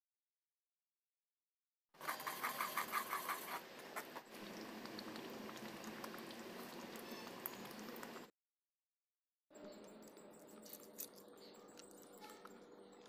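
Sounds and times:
paste bubbling in oil: 2.1s - 8.3s
short squeaky clicks: 7.0s - 7.8s, 9.6s - 12.7s.

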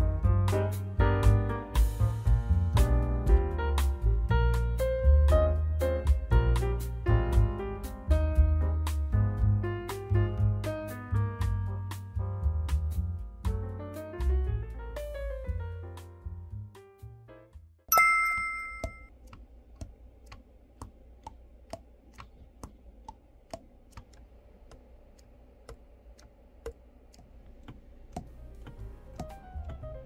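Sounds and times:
piano music: 0.0s - 19.1s, 28.3s - 30.0s
chime ringing: 17.9s - 19.1s.

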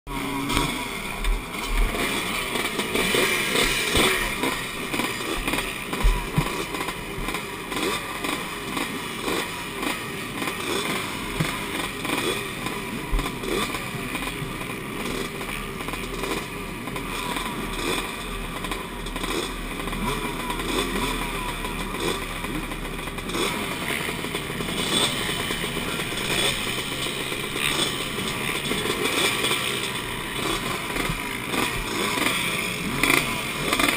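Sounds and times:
motorbikes idling and revving: 0.1s - 33.9s.

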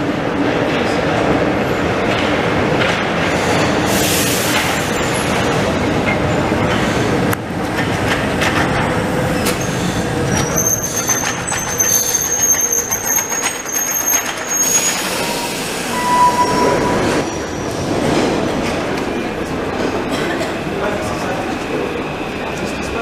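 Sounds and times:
subway train rumble: 0.0s - 23.0s
high thin wheel squeal: 10.4s - 17.6s.

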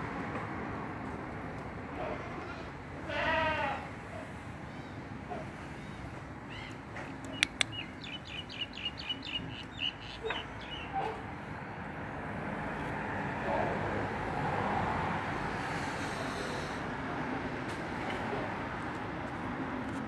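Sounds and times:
small bird chirping: 6.6s - 10.9s
sharp clicks: 7.2s - 7.8s.

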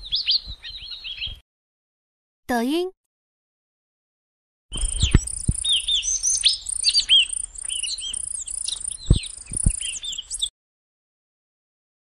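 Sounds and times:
small birds chirping: 0.0s - 1.4s, 4.7s - 10.5s
low thumps: 9.0s - 9.8s.

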